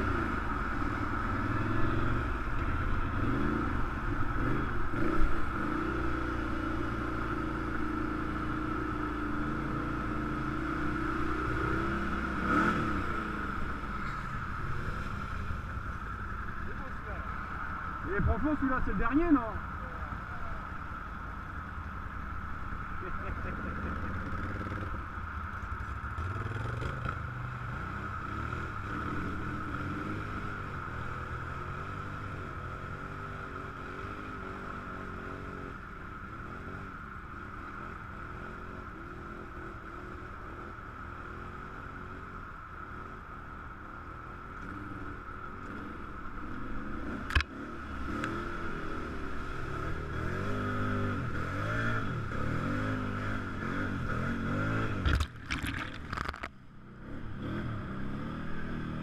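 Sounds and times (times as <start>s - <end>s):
atv engine revving: 0.0s - 17.2s, 23.0s - 25.0s, 25.7s - 35.7s, 44.6s - 59.0s
splashing through mud: 55.0s - 56.5s.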